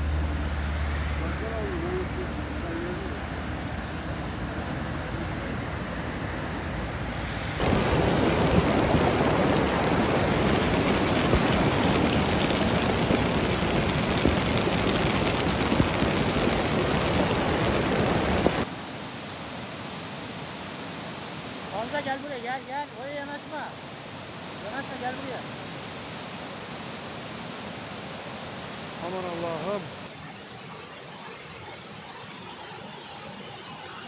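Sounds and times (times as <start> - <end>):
floodwater rushing: 0.0 - 18.8.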